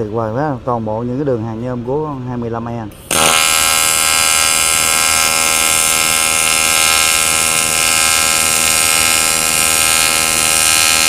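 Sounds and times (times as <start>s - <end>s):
welding arc buzzing: 3.0s - 11.0s.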